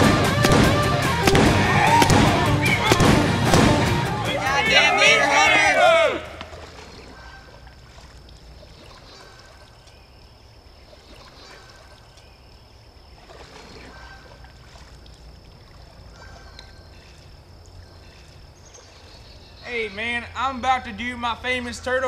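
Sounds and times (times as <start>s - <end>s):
soft water sounds: 4.9s - 19.7s.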